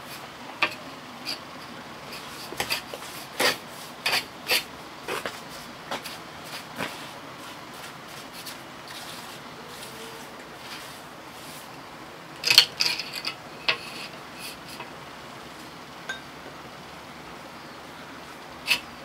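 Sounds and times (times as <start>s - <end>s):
tools rubbing and tapping on brick: 0.6s - 7.1s, 12.4s - 14.9s, 18.6s - 19.0s.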